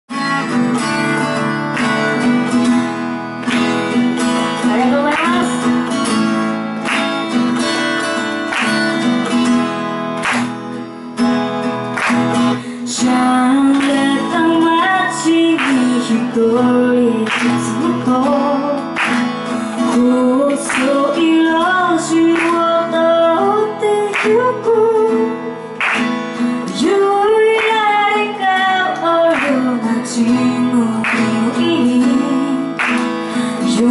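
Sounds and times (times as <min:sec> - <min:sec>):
strummed acoustic guitar: 0:00.1 - 0:33.9
woman singing: 0:04.6 - 0:05.9, 0:12.6 - 0:25.7, 0:26.5 - 0:33.9.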